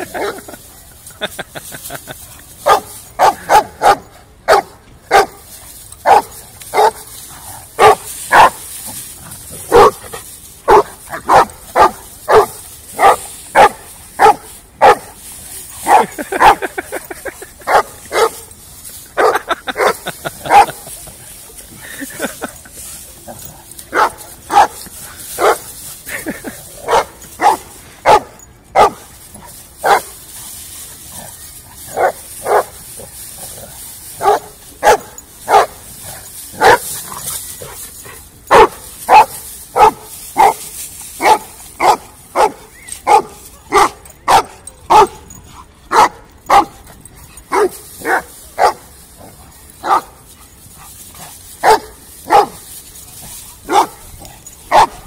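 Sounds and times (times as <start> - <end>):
dogs barking: 2.6 - 5.4, 6.0 - 7.1, 7.8 - 8.6, 9.6 - 15.1, 15.8 - 18.6, 19.2 - 20.9, 23.4 - 29.1, 29.8 - 30.1, 31.8 - 33.6, 34.2 - 37.7, 38.5 - 48.8, 49.8 - 50.2, 51.6 - 52.6, 53.6 - 55.0.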